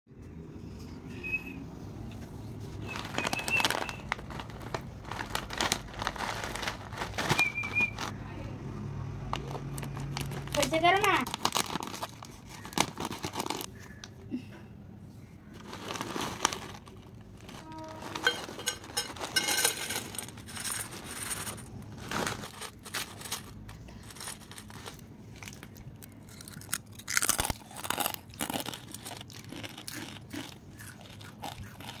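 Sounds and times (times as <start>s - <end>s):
plastic snack packet crinkling: 2.8s - 8.2s, 9.3s - 14.0s, 15.6s - 32.0s
potato sticks crunching: 22.1s - 32.0s.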